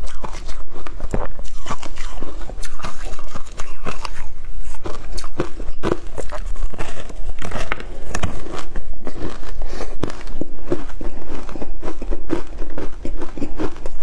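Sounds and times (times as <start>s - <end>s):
ice crunching between teeth: 0.0s - 14.0s.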